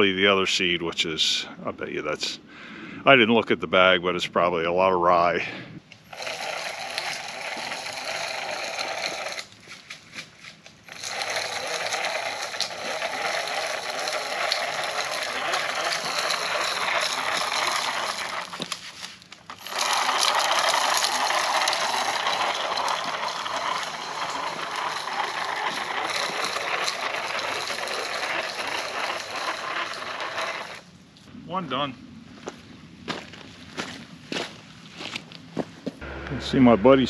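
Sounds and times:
seed spreader gears whirring: 6.0s - 9.8s, 10.8s - 30.9s, 36.0s - 37.0s.

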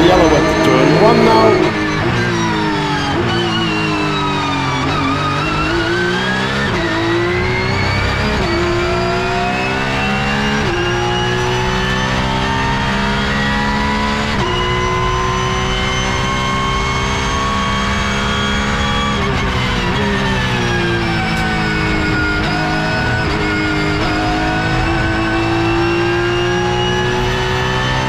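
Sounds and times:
racing car engine at full throttle: 0.0s - 28.0s.

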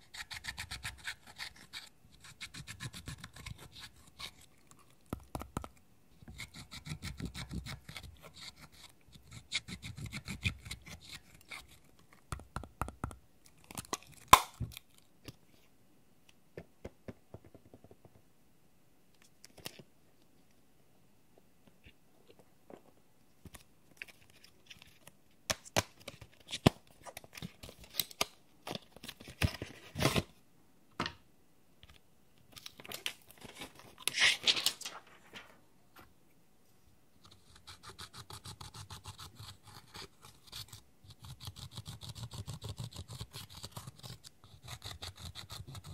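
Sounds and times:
crinkly packaging rustling: 32.5s - 35.6s.

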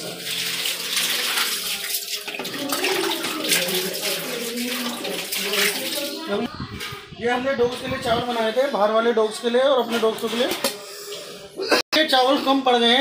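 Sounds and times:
water splashing and sloshing: 0.0s - 7.0s.

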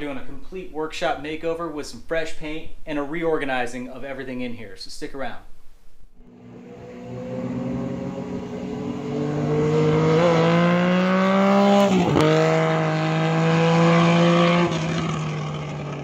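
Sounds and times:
vehicle engine accelerating: 6.2s - 16.0s.

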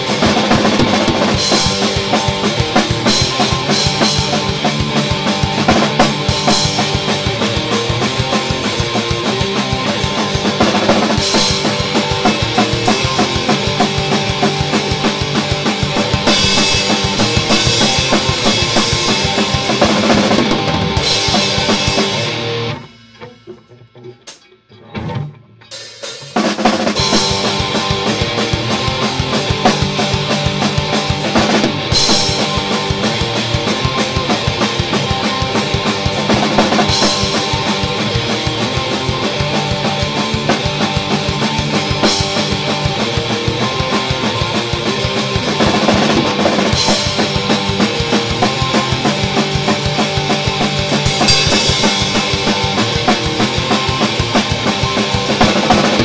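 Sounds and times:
drum kit playing: 0.0s - 56.0s
electric guitar: 0.0s - 56.0s
cymbal crash: 51.1s - 53.9s.

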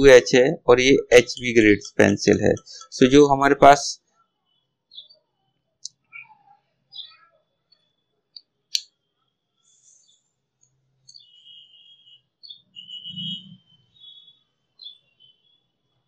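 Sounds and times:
faint high chirps: 0.0s - 16.0s.

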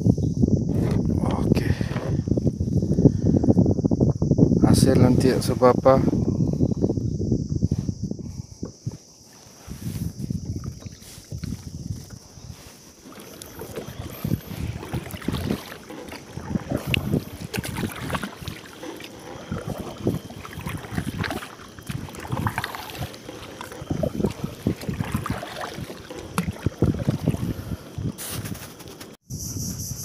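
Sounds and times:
wind buffeting microphone: 0.0s - 30.0s
paddle strokes splashing water: 8.6s - 29.2s.

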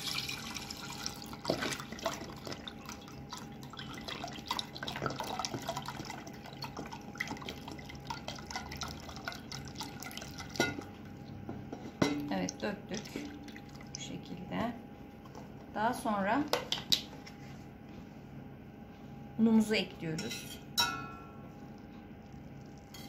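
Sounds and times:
milk pouring into a metal pot: 0.0s - 10.9s.

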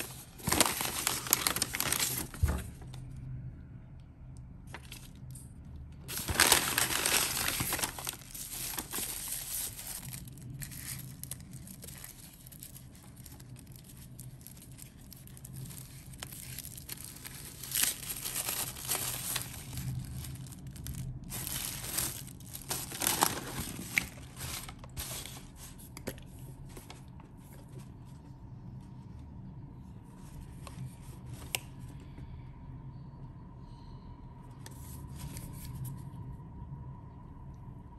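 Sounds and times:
tissue paper crinkling and tearing: 0.0s - 2.9s, 6.1s - 25.8s.

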